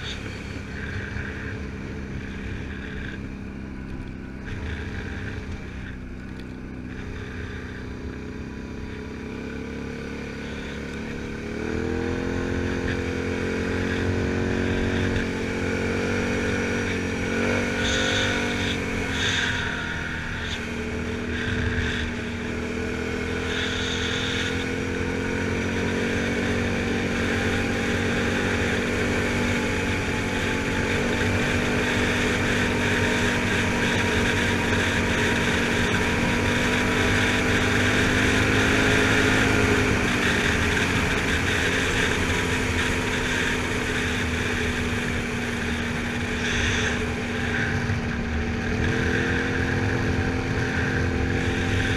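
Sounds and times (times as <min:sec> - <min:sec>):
atv engine running: 0:00.0 - 0:51.9.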